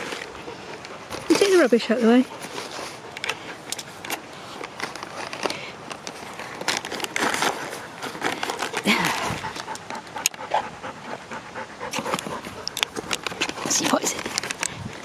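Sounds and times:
dog panting: 0.0 - 4.3, 7.4 - 15.0
paper rustling and crinkling: 0.0 - 9.7, 12.0 - 15.0.

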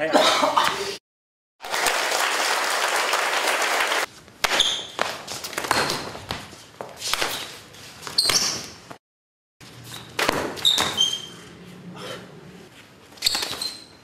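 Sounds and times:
slaps and thuds of blows: 4.4 - 7.6, 10.2 - 11.0
shoes squeaking on tiled floor: 4.5 - 9.0, 9.7 - 11.9, 12.7 - 14.0.

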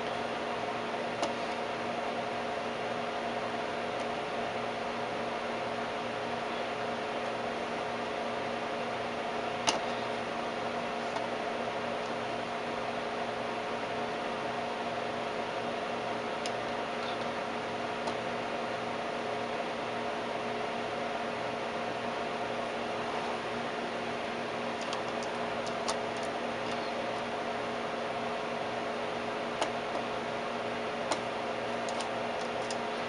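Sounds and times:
oscilloscope electrical hum: 0.0 - 33.0.

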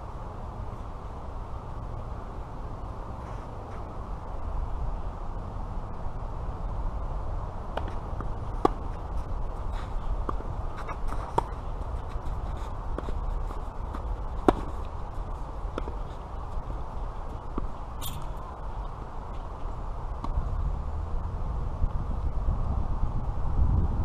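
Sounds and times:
wind rumble on microphone: 0.0 - 24.0
tennis ball struck by rackets: 7.7 - 19.1.

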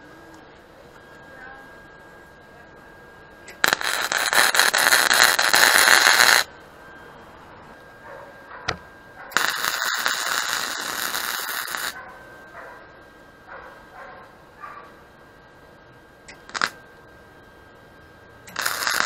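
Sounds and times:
arc welding crackling: 3.5 - 6.5, 9.3 - 12.0, 16.2 - 17.0, 18.4 - 19.0.

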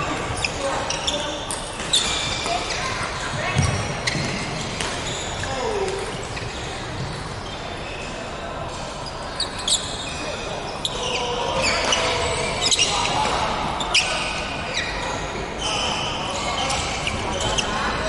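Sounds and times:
shoes squeaking on wooden floor: 0.0 - 8.0.

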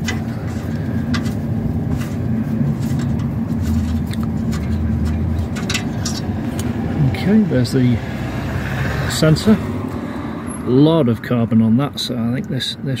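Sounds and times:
low mechanical hum: 0.0 - 8.7.

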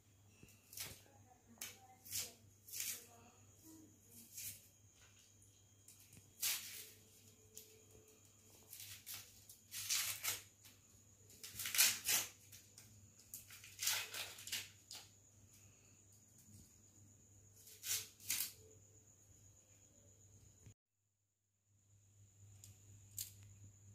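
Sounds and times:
garlic skins crackling and rustling: 8.4 - 10.8, 11.4 - 15.1.

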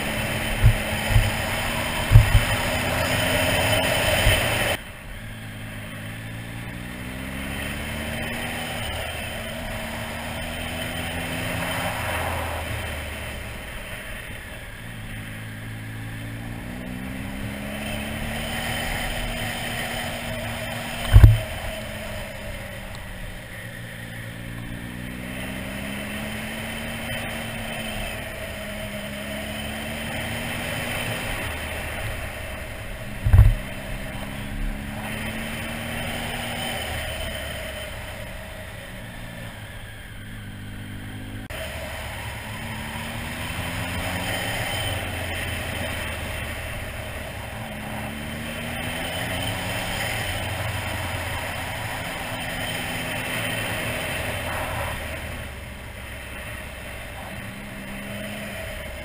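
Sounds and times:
motorcycle engine accelerating: 0.0 - 59.0
wind and road noise: 0.0 - 59.0
loud low thump: 21.1 - 21.6, 33.2 - 33.6.

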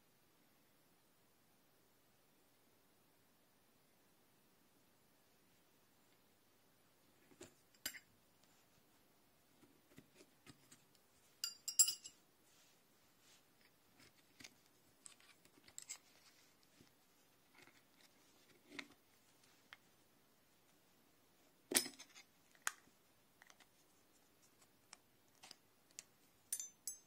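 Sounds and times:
metal spanner clink: 11.4 - 12.2, 26.5 - 27.0.

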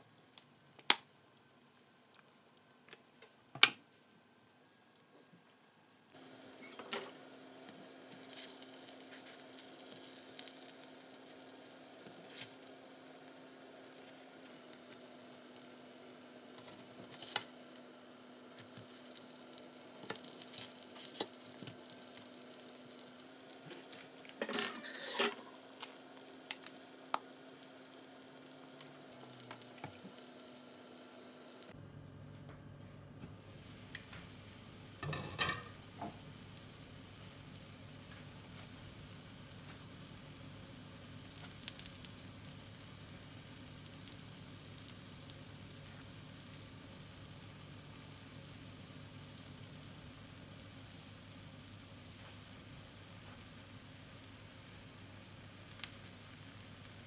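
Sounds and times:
omelette sizzling in oil: 6.0 - 31.8, 33.4 - 57.0
spatula scraping a pan: 24.4 - 25.5.

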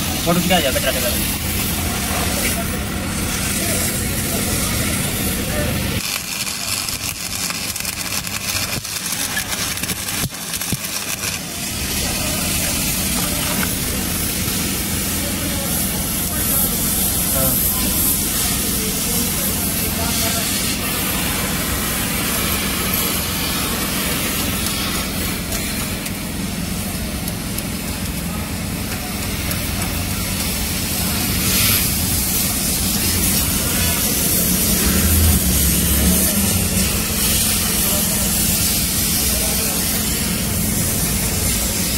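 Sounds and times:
hiss: 0.0 - 27.0, 27.6 - 41.9
welding machine whirring: 0.0 - 41.9
slag scraping off weld: 6.0 - 15.2.

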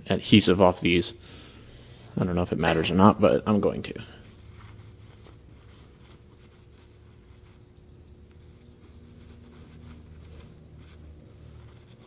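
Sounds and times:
low steady hum: 0.0 - 12.0
paper towel rubbing: 4.0 - 12.0.

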